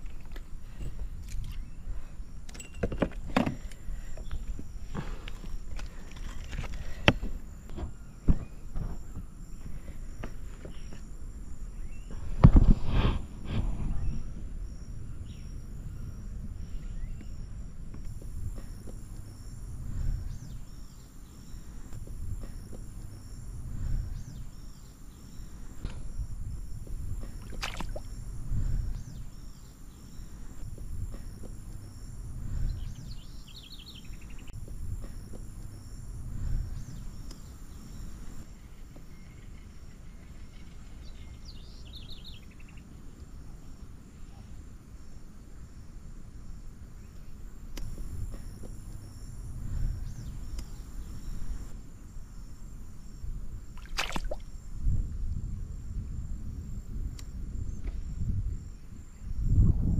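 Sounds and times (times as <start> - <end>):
insects trilling: 0.0 - 59.9
low rumble: 12.7 - 20.8, 22.0 - 24.6, 25.9 - 29.4, 30.6 - 33.4
bird chirps: 32.6 - 34.6, 36.8 - 42.9.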